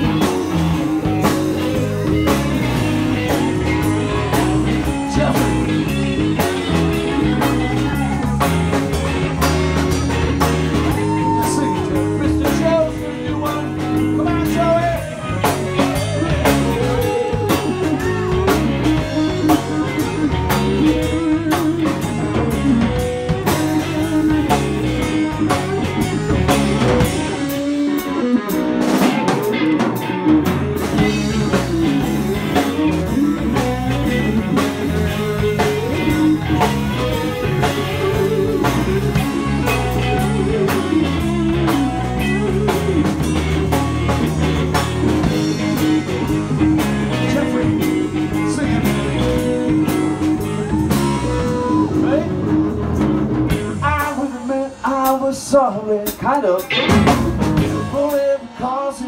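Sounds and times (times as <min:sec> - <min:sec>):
drum kit: 0:00.0 - 0:58.5
electric guitar: 0:00.0 - 0:59.0
live blues-rock band: 0:00.0 - 0:59.0.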